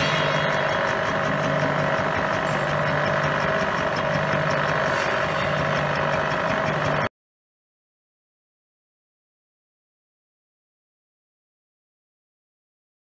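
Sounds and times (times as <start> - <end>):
faint regular ticking: 0.0 - 7.1
milling machine whine: 0.0 - 7.1.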